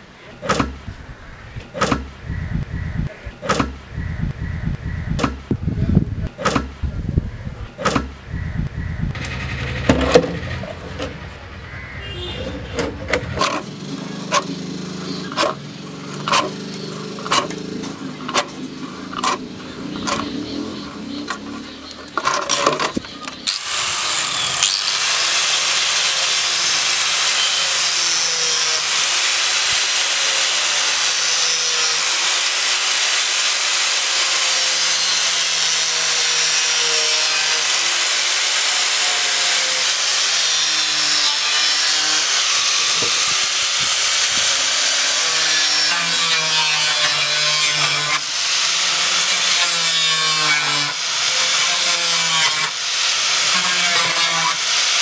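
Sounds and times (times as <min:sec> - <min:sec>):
angle grinder cutting plastic: 0:12.8 - 0:55.0.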